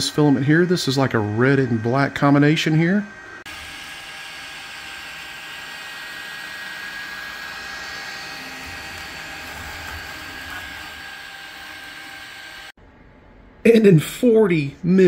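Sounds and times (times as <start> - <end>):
printer motors driving: 3.7 - 12.7.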